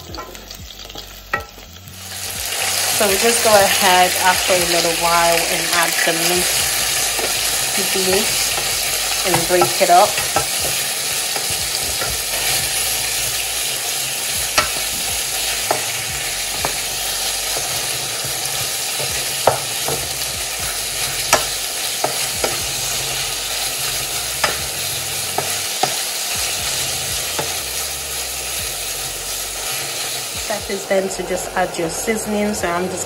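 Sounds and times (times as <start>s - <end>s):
meat sizzling in a pan: 0.0s - 33.0s
wooden spatula knocking against pan: 19.0s - 20.1s.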